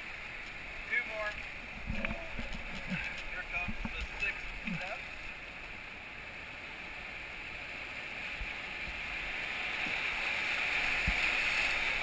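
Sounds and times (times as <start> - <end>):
river rapids rushing: 6.7 - 12.0.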